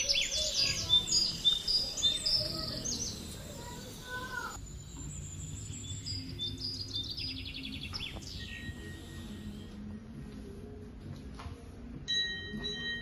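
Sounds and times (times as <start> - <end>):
small birds chirping and trilling: 0.0 - 9.8.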